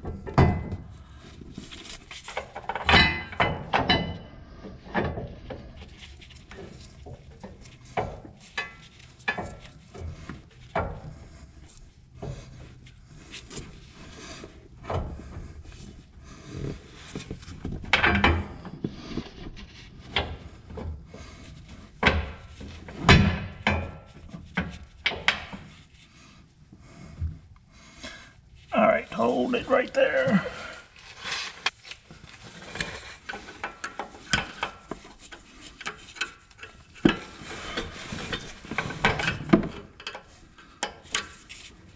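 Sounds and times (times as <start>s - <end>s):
metal clunks and knocks: 0.0s - 1.0s, 2.4s - 5.8s.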